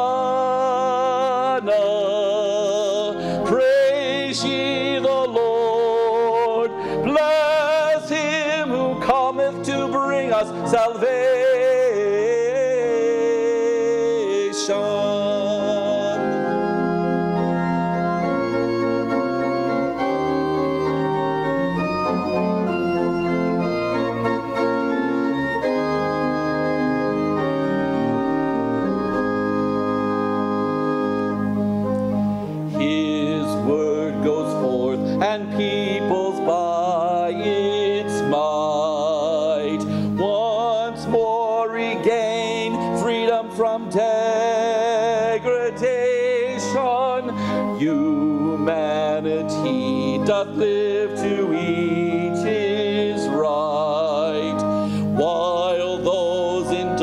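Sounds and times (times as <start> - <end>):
person singing with vibrato: 0.0 - 21.0, 32.7 - 57.0
organ chords: 0.0 - 57.0.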